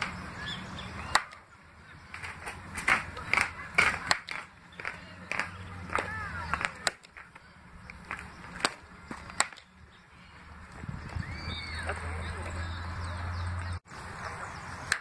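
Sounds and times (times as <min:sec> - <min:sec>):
bird chirping: 0:00.0 - 0:02.3, 0:04.6 - 0:14.9
baseball bat hitting balls: 0:00.9 - 0:09.8.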